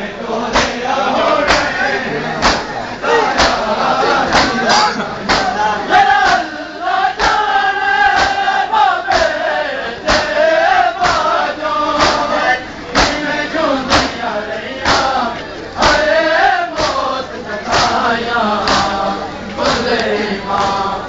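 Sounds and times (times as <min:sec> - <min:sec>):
men chanting together: 0:00.0 - 0:21.0
hands striking chests: 0:02.4 - 0:02.7.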